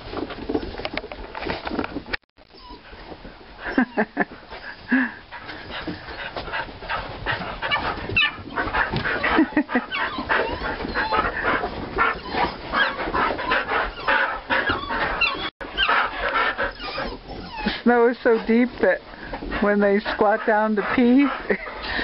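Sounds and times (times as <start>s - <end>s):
dogs whining and yipping: 2.4s - 18.6s, 21.3s - 22.0s.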